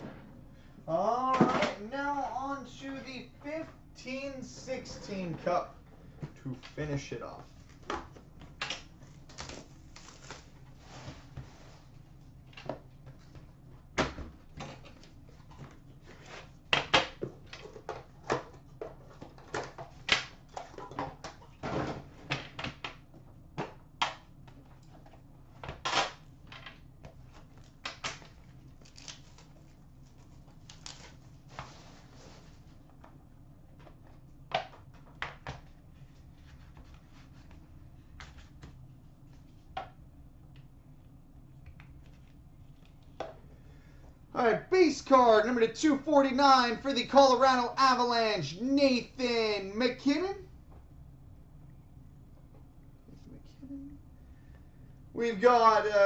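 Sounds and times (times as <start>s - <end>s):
plastic wrap tearing and crumpling: 9.2s - 10.6s, 28.8s - 29.6s, 30.6s - 31.3s.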